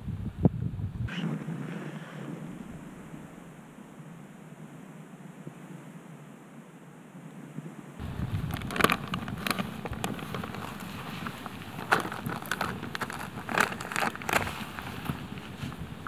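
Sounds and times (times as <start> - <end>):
campfire crackling and popping: 8.0 - 16.0.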